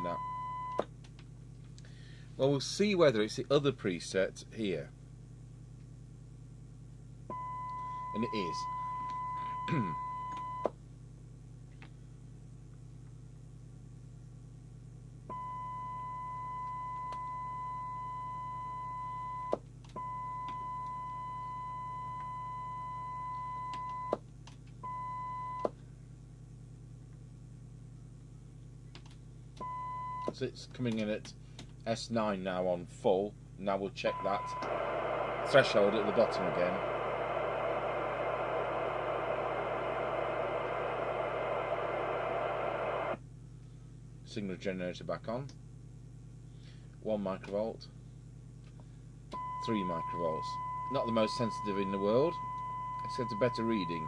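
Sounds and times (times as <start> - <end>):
radio speaker static hiss: 34.1 - 43.2, 49.8 - 52.3, 53.1 - 54.0
steady test tone: 34.1 - 43.2, 49.4 - 54.0
low hum: 34.1 - 43.9.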